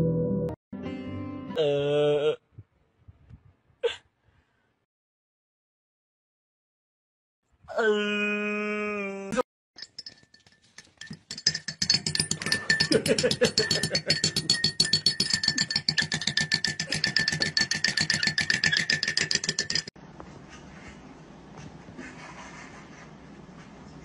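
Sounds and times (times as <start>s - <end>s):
high ringing from mug: 9.8s - 18.4s
spoon clinking against mug: 9.8s - 19.9s.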